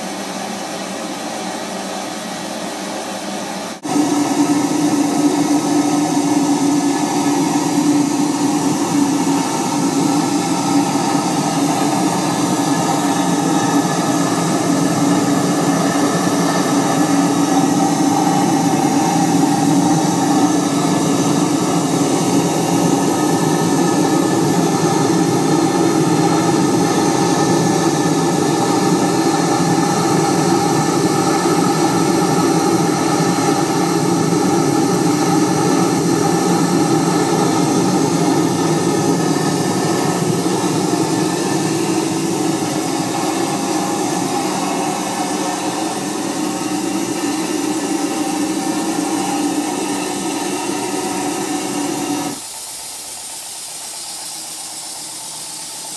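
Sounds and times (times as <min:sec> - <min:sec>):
steady hum: 0:00.0 - 0:55.9
steam hissing: 0:00.0 - 0:55.9.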